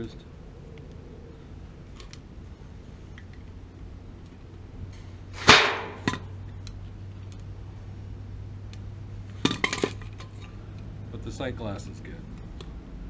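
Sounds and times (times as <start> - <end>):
metal piece clattering on concrete: 9.4 - 10.5.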